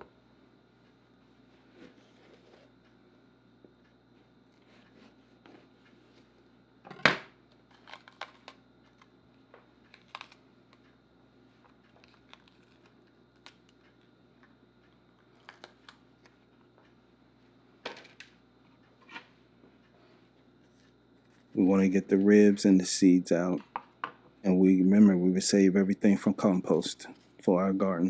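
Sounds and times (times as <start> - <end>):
pepper crackling as it is cut: 7.7 - 9.1.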